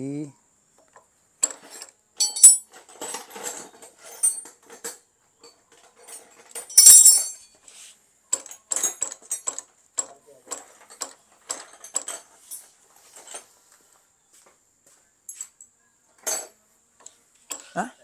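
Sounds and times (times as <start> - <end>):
metal clatter: 1.4 - 7.6, 8.4 - 13.5
metal tools clinking: 1.4 - 7.7, 8.4 - 13.6, 16.2 - 16.6.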